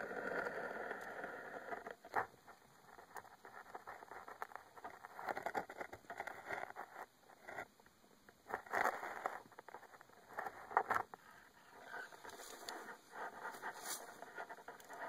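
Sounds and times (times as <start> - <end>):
phone scraping against roots and soil: 8.5 - 15.0.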